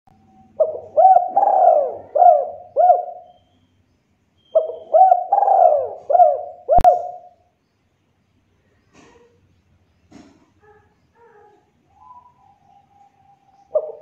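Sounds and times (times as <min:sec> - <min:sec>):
dove cooing: 0:00.3 - 0:03.4, 0:04.5 - 0:07.4, 0:11.2 - 0:14.0.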